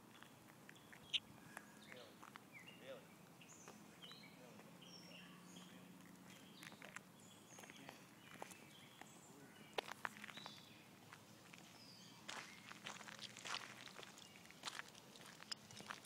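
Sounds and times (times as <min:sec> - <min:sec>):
small birds chirping: 0:00.0 - 0:16.0
footsteps on gravel: 0:05.5 - 0:16.0.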